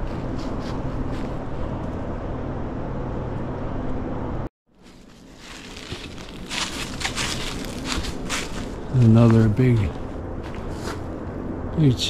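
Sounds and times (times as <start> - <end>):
low outdoor rumble: 0.0 - 12.0
footsteps on dry leaves: 4.8 - 11.1.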